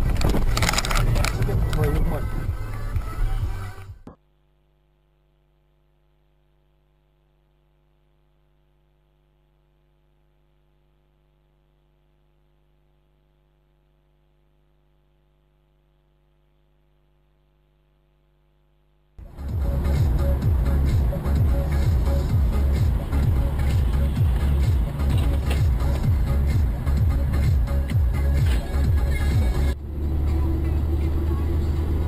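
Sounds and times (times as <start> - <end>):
faint electrical mains hum: 4.2 - 19.2.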